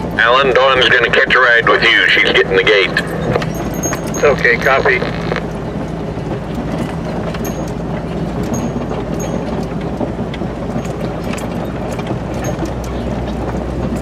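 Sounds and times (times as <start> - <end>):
tyres on gravel: 0.0 - 14.0
vehicle engine running: 0.0 - 14.0
vehicle rattles and clicks: 0.0 - 14.0.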